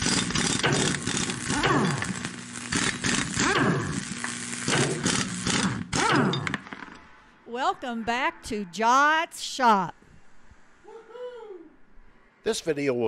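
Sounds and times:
crackling sizzling hiss: 0:00.0 - 0:06.0
steady hum: 0:00.0 - 0:13.0.

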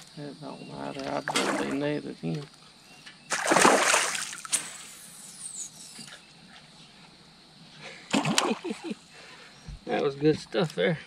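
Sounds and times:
fish splashing at water surface: 0:03.3 - 0:04.9, 0:08.1 - 0:08.8.

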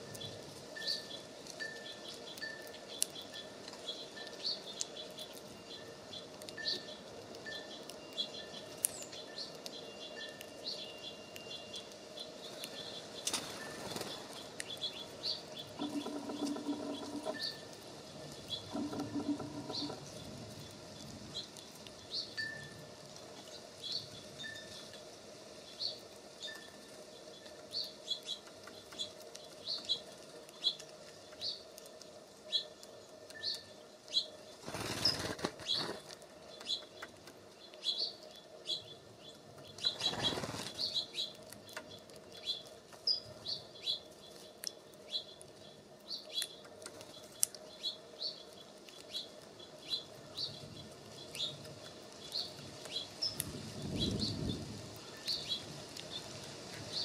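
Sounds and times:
songbird chirping: 0:00.0 - 0:57.0
wings fluttering: 0:12.5 - 0:14.8, 0:15.7 - 0:17.5, 0:34.5 - 0:37.4, 0:39.7 - 0:42.2.

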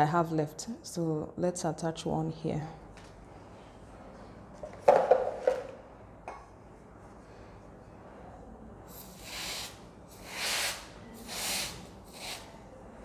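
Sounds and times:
objects knocking on counter: 0:04.7 - 0:06.5
aerosol spray hissing: 0:08.9 - 0:12.5.

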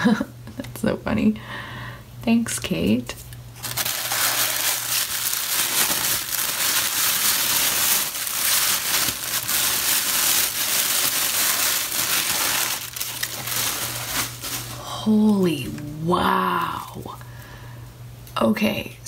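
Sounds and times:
low steady hum: 0:00.0 - 0:19.0
tissue paper crinkling: 0:03.6 - 0:14.9.

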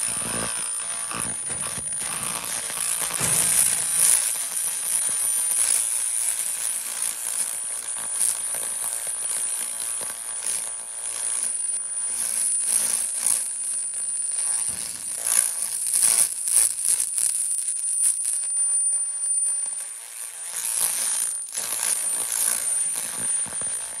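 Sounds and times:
laser crackling hiss: 0:00.0 - 0:11.4.

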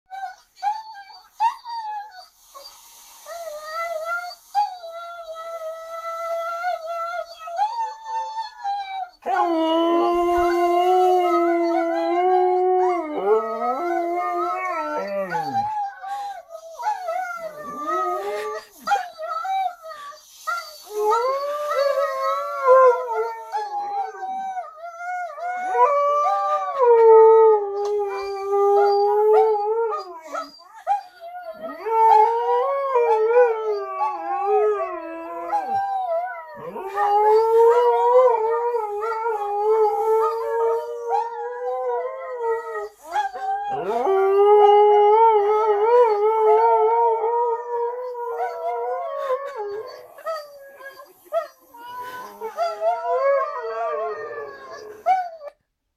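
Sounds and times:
husky howling: 0:09.2 - 0:16.0, 0:31.5 - 0:50.7.

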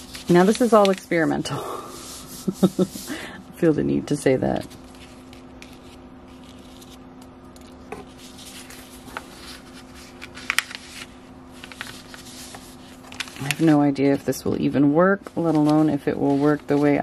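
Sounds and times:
paper rustling and crackling: 0:00.0 - 0:01.4, 0:07.6 - 0:14.3, 0:15.3 - 0:17.0.

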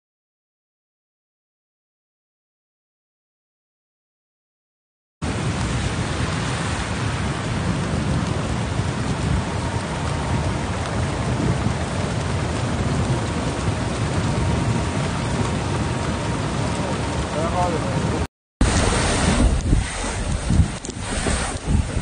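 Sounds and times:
floodwater rushing with low rumble: 0:05.2 - 0:22.0.

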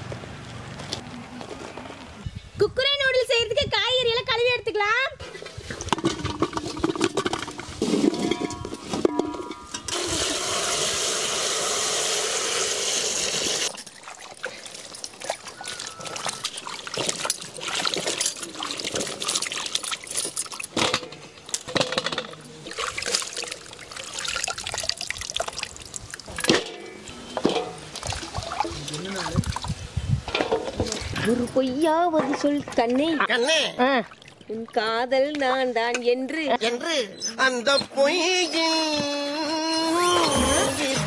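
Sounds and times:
water pouring into a pot: 0:09.9 - 0:20.7, 0:22.6 - 0:26.7, 0:27.6 - 0:29.8
hands washing vegetables in water: 0:13.6 - 0:21.0, 0:22.6 - 0:29.9, 0:33.8 - 0:35.9.

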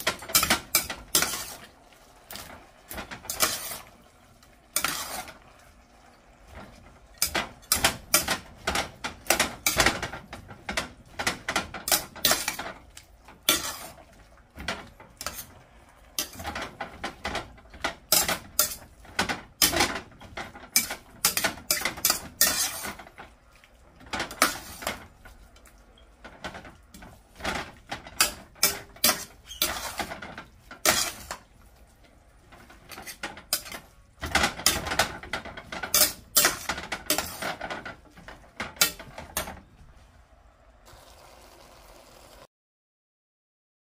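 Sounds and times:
metal spatula scraping a pan: 0:00.0 - 0:39.6.

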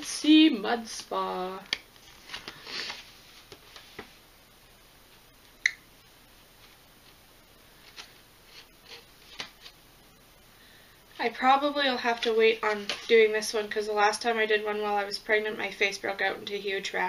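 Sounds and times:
paper leaflet rustling: 0:02.0 - 0:04.1.

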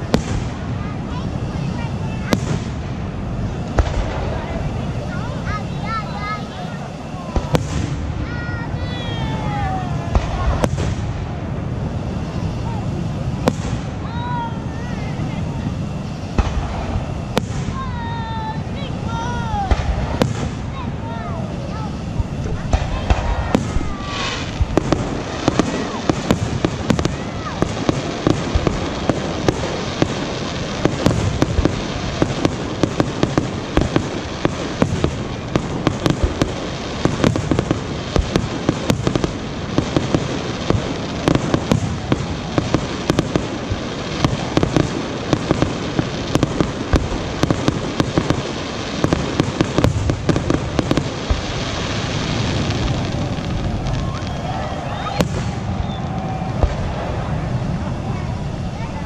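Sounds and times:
fireworks bangs and pops: 0:00.0 - 0:59.0.

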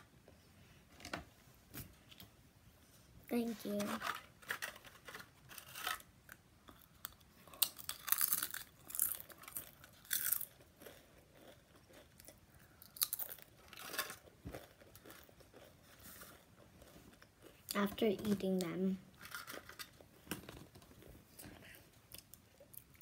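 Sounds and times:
person crunching tortilla chips: 0:04.4 - 0:17.6.

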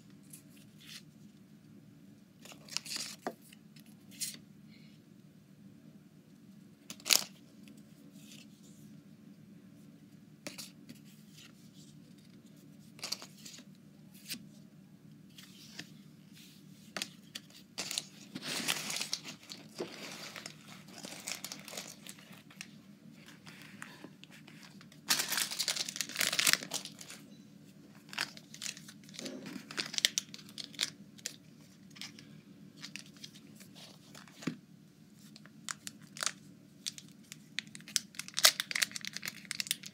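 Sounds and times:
foil packs tearing and crinkling: 0:17.8 - 0:22.6, 0:25.0 - 0:27.2, 0:28.0 - 0:31.4, 0:35.7 - 0:39.9.

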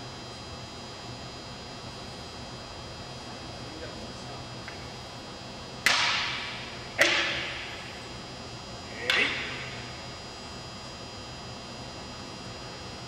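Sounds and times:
wooden swords clacking with echo: 0:05.8 - 0:08.0, 0:08.9 - 0:09.9.

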